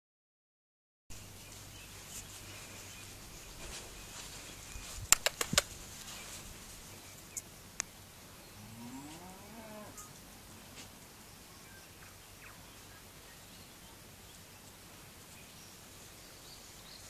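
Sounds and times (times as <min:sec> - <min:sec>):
sharp clicks: 0:05.1 - 0:05.8.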